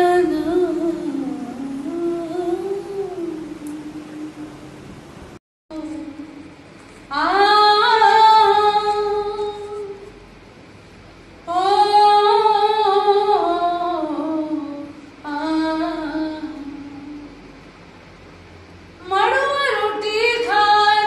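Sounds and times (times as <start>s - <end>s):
woman singing unaccompanied: 0.0s - 4.6s, 5.7s - 6.5s, 7.1s - 10.1s, 11.5s - 17.4s, 19.0s - 21.0s.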